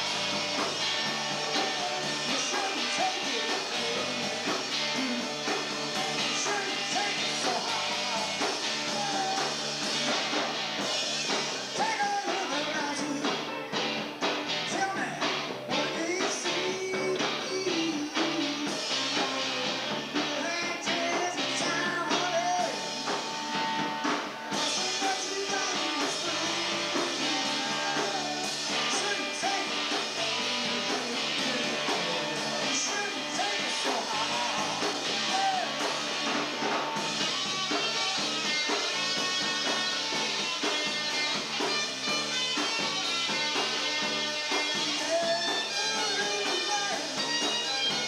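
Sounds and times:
rock band playing live: 0.0s - 48.0s
person singing: 1.4s - 10.2s, 11.8s - 13.5s, 14.7s - 22.8s, 24.6s - 36.0s, 44.8s - 47.4s.

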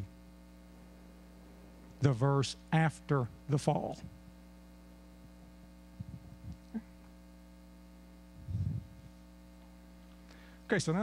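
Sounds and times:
electrical mains hum: 0.0s - 11.0s
soft low thumps: 8.3s - 9.2s.

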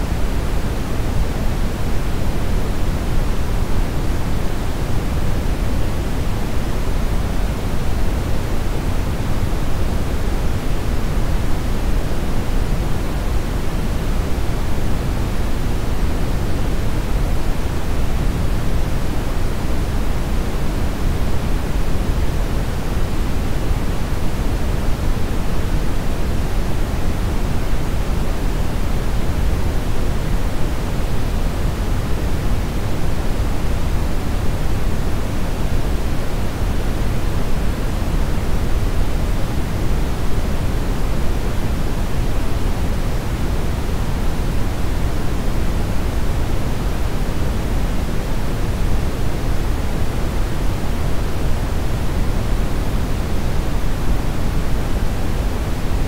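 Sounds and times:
brown noise hiss: 0.0s - 56.0s.

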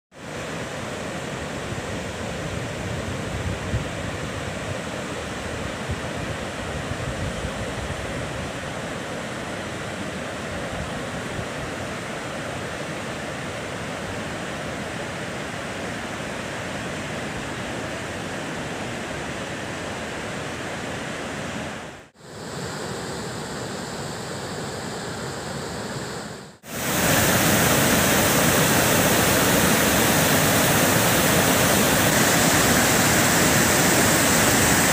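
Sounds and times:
water rushing over waterfall: 26.6s - 34.9s.

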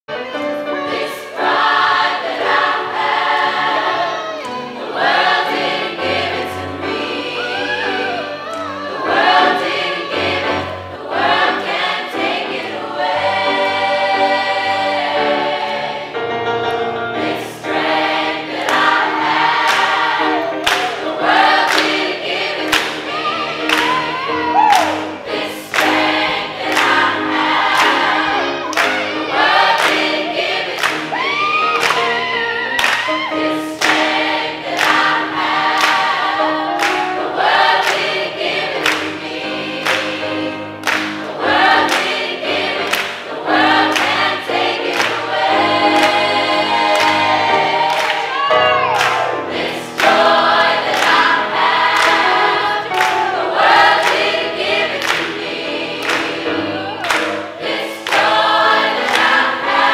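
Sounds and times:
choir singing upbeat song: 0.1s - 59.9s
piano accompaniment: 0.1s - 59.9s
hand claps on the beat: 18.6s - 19.0s, 19.6s - 22.1s, 22.7s - 23.0s, 23.7s - 25.0s, 26.7s - 27.1s, 27.7s - 29.1s, 29.7s - 32.2s, 32.8s - 33.2s, 33.8s - 35.2s, 35.8s - 36.2s, 36.8s - 37.1s, 37.8s - 39.2s, 39.8s - 40.2s, 40.8s - 43.2s, 43.9s - 45.2s, 47.0s - 48.3s, 49.0s - 49.2s, 50.9s - 52.2s, 52.9s - 53.3s, 54.0s - 54.4s, 55.0s - 55.4s, 56.0s - 56.4s, 57.0s - 59.5s.

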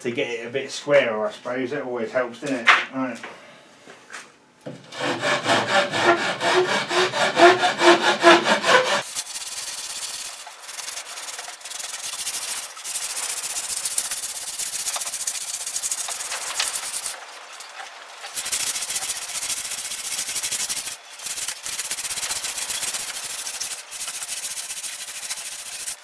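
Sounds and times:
rasp scraping wood: 4.8s - 17.2s, 18.2s - 26.0s
sandpaper rubbing wood: 5.0s - 26.0s.

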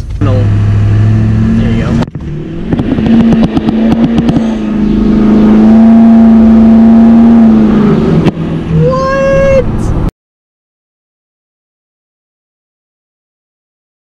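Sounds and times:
diesel engine accelerating: 0.0s - 10.1s
rising whine: 0.0s - 10.1s.

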